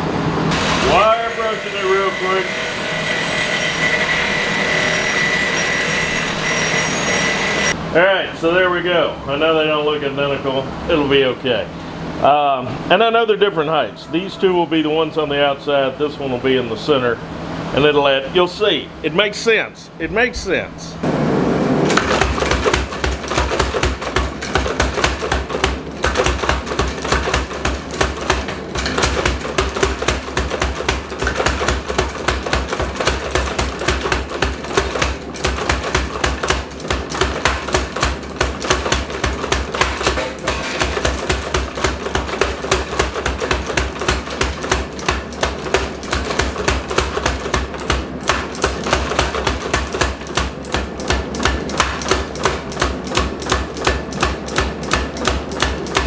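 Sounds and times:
power hammer pounding metal: 0:21.8 - 0:56.0.

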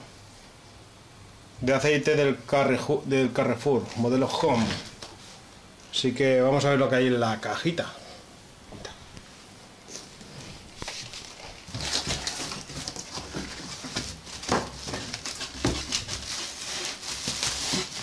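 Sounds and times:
cardboard rustling and scraping: 0:03.8 - 0:05.4, 0:09.9 - 0:18.0.

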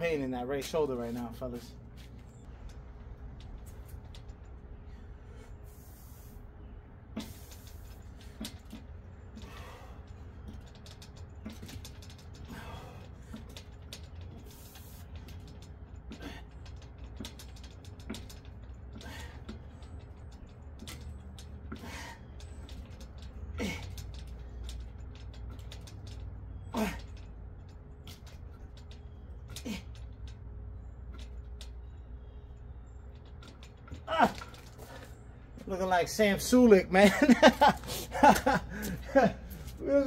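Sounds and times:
metal dip station creaking: 0:07.0 - 0:40.0.

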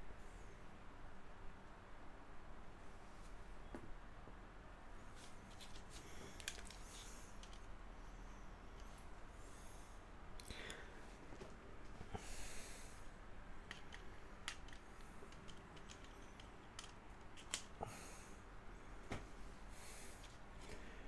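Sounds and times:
soft rustles: 0:05.0 - 0:07.8
plastic parts clicking together: 0:06.4 - 0:07.7, 0:13.6 - 0:17.8.

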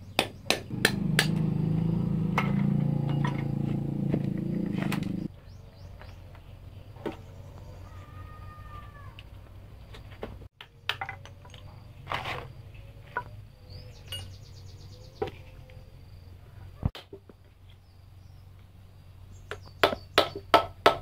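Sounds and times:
hammer striking steel punch: 0:00.2 - 0:01.4.

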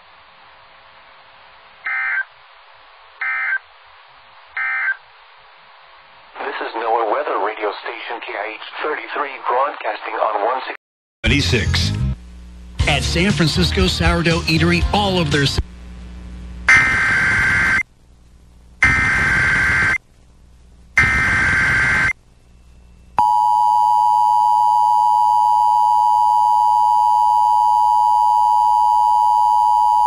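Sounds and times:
digital data bursts screeching: 0:16.7 - 0:17.8, 0:18.8 - 0:20.0, 0:21.0 - 0:22.2
two-tone attention signal: 0:18.8 - 0:20.0.

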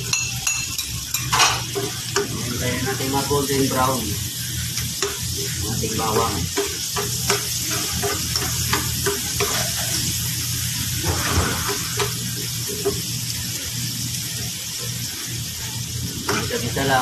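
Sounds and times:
garlic sizzling in oil: 0:00.0 - 0:17.0
spatula scraping a pan: 0:05.0 - 0:13.0.

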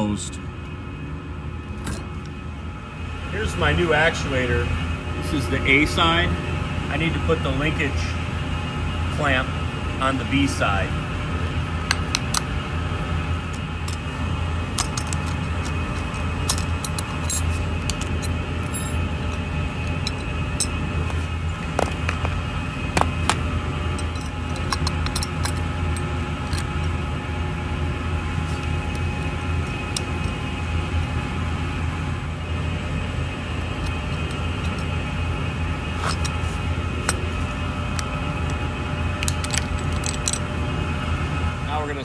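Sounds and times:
machinery hum with drone: 0:00.0 - 0:42.0.

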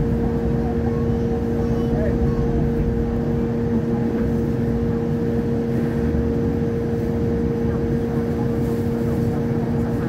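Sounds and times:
light rail car rumble: 0:00.0 - 0:10.0.

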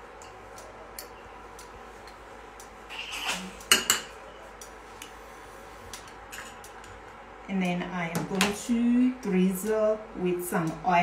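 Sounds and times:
metal spoons clinking on dishes: 0:03.2 - 0:04.1.

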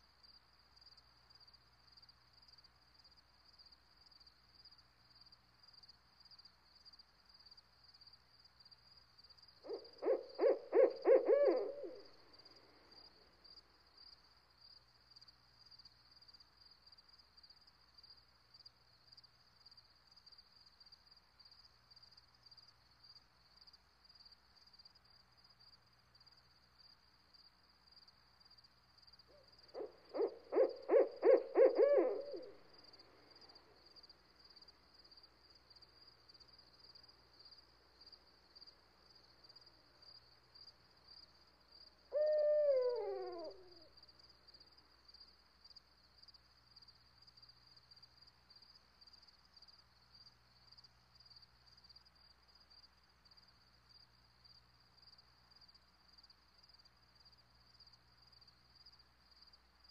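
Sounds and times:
owl hooting: 0:09.6 - 0:12.6, 0:29.3 - 0:33.6, 0:42.1 - 0:44.0
high insect drone: 0:42.1 - 0:45.2.

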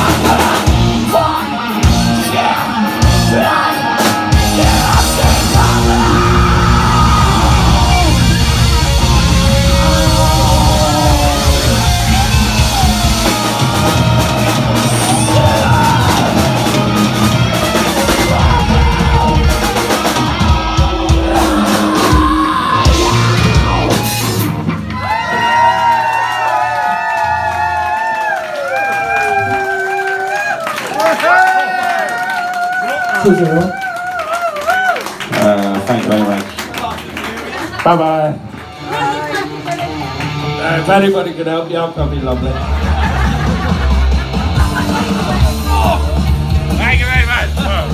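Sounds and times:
live rock band playing: 0:00.0 - 0:26.4, 0:37.4 - 0:47.9
yelled vocals: 0:00.0 - 0:27.9.

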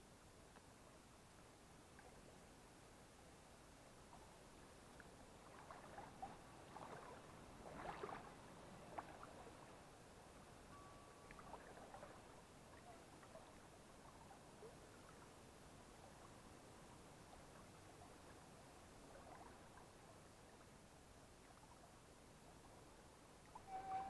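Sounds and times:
running water: 0:03.8 - 0:24.0
person wading through stream: 0:04.2 - 0:10.0, 0:11.4 - 0:13.6, 0:19.0 - 0:20.2.

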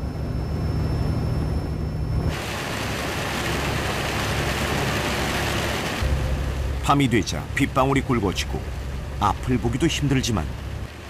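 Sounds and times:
truck engine drone: 0:00.0 - 0:11.0
heavy rain hiss: 0:02.3 - 0:11.0.

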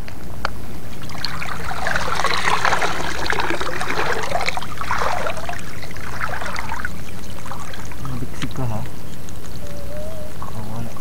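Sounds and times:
steady low hum: 0:00.0 - 0:11.0
seawater splashing: 0:00.8 - 0:09.5.

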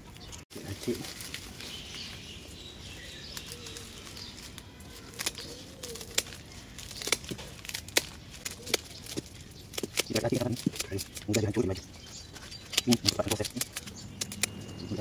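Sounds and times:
pruning shears snipping: 0:03.3 - 0:15.0.

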